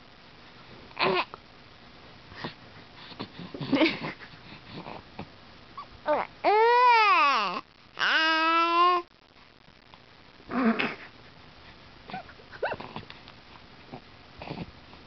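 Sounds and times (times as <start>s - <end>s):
baby crying: 6.1s - 9.1s.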